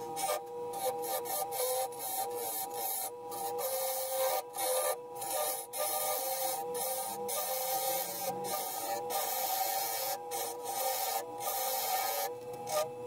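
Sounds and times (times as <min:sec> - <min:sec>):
lathe motor whine: 0:00.0 - 0:13.0
turning tool scraping wood: 0:00.0 - 0:13.0.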